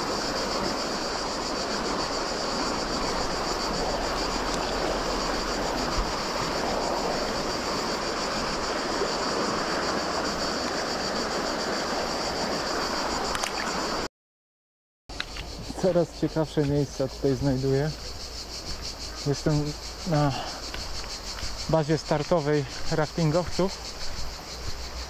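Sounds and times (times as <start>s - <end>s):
river water rushing: 0.0s - 14.0s
constant high hiss: 0.0s - 14.1s, 15.1s - 25.0s.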